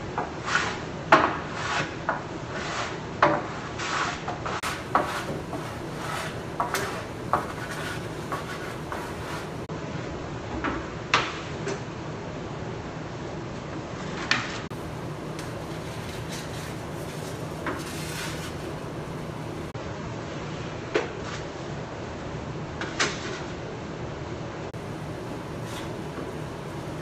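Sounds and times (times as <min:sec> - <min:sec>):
objects knocking and scraping: 0:04.5 - 0:09.7, 0:14.7 - 0:19.7, 0:24.8 - 0:27.0.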